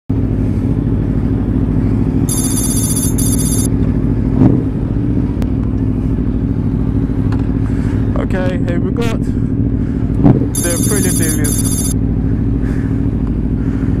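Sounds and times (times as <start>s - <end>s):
motorcycle engine idling: 0.1s - 14.0s
electronic warbling ring: 2.3s - 3.7s, 10.6s - 12.0s.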